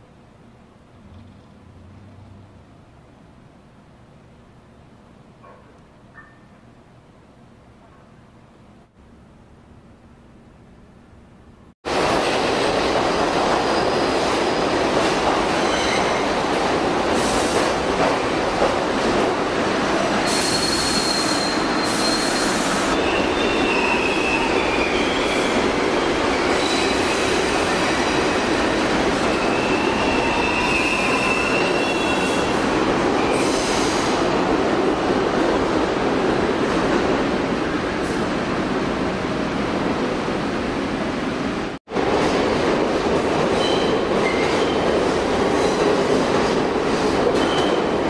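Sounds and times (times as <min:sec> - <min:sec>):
train wheels rumbling on rails: 0:11.9 - 0:48.0
high-pitched wheel squeals: 0:20.3 - 0:25.6, 0:29.4 - 0:32.5.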